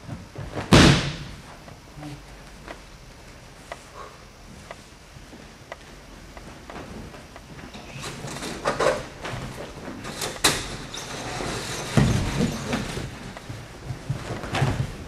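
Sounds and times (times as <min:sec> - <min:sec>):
bodies thudding on mats: 0:00.0 - 0:01.7, 0:11.8 - 0:15.0
sharp slap: 0:00.6 - 0:01.4.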